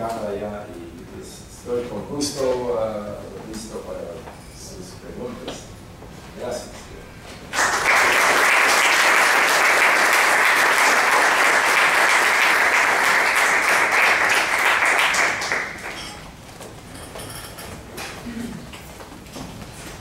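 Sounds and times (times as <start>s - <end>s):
audience applauding: 7.5s - 16.2s.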